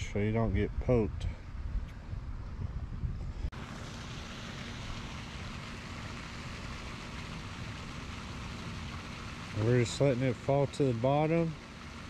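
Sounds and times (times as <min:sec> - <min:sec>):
even outdoor hiss: 0:03.6 - 0:12.0.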